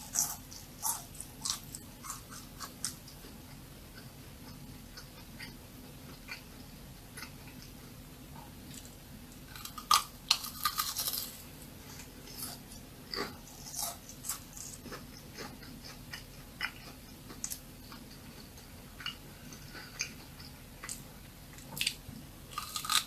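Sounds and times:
crunchy food chewing: 0.0 - 8.0, 8.6 - 23.0.

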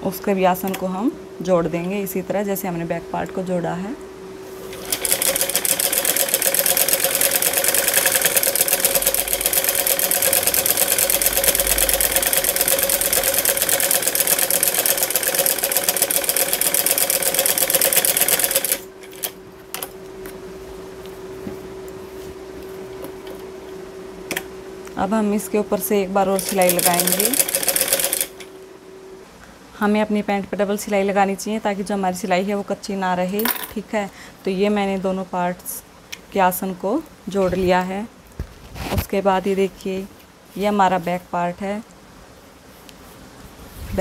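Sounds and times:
sewing machine stitching: 4.7 - 19.3, 26.3 - 28.4.

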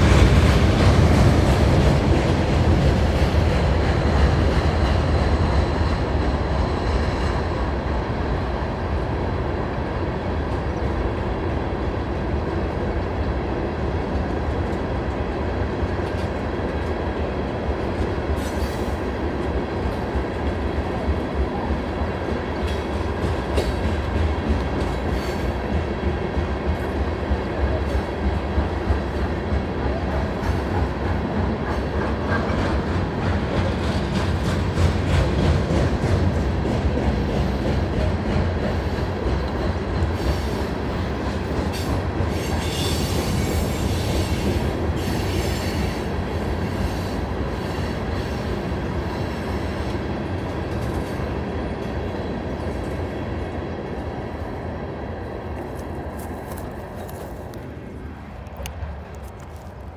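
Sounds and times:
train wheels clicking: 0.0 - 7.7, 22.1 - 54.6
train rolling past: 0.0 - 59.9.

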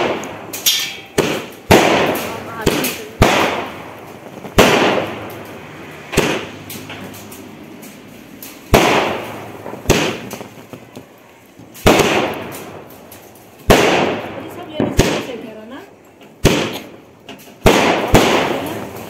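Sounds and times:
firework bangs: 0.0 - 19.0.

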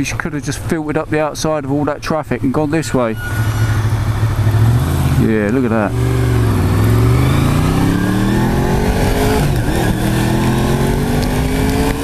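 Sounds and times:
tyres on wet road: 0.0 - 12.0
rush of wind: 3.1 - 12.0
motorcycle engine accelerating: 3.6 - 12.0.

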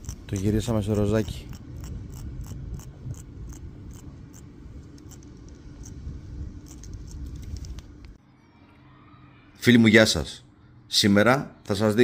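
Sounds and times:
steady low rumble: 0.0 - 8.2.

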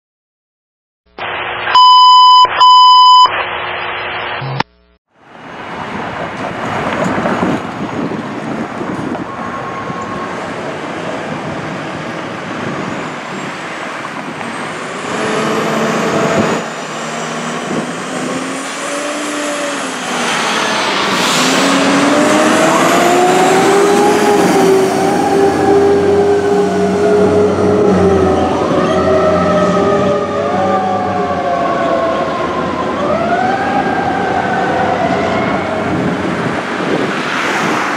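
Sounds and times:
fire trucks accelerating: 5.2 - 37.9
sirens wailing: 8.5 - 37.4.

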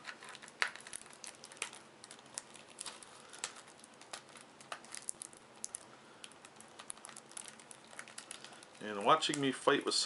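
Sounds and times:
shrink-wrap crinkling: 0.0 - 10.0.

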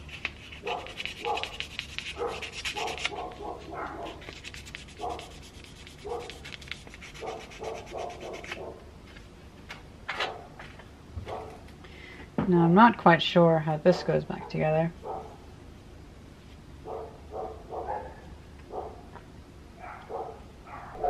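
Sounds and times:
scratchy rubbing of motor parts: 0.0 - 8.7
dog yapping: 0.6 - 4.3, 5.0 - 5.3, 6.0 - 6.4, 7.2 - 8.8, 16.9 - 19.0, 19.8 - 21.0.

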